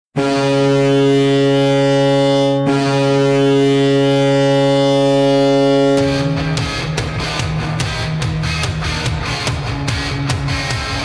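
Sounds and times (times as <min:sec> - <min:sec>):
arena goal horn blast: 0:00.2 - 0:07.4.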